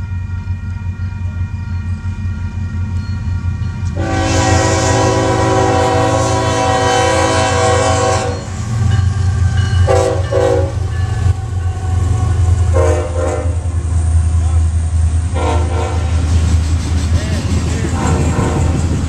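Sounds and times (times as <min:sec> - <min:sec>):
diesel locomotive engines rumbling: 0:00.0 - 0:19.0
train air horn blasts: 0:03.9 - 0:13.8, 0:15.3 - 0:16.3.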